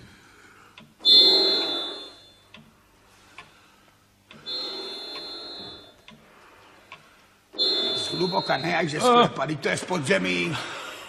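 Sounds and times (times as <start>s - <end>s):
man breathing with rasping wheeze: 3.1s - 7.9s.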